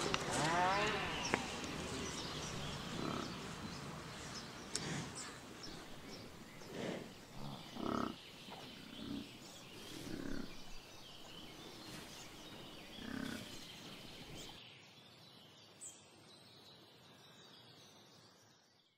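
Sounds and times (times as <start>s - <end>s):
water buffaloes grunting: 0.0s - 10.7s, 12.9s - 13.7s.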